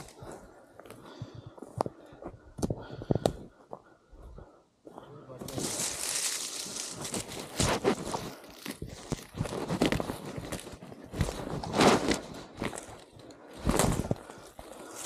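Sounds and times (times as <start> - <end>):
footsteps on rough ground: 0.0 - 15.0
foot scuffs: 5.4 - 8.2.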